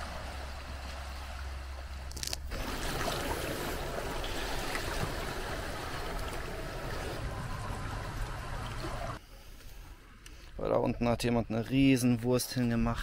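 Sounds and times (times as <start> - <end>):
seawater washing among rocks: 0.0 - 9.2.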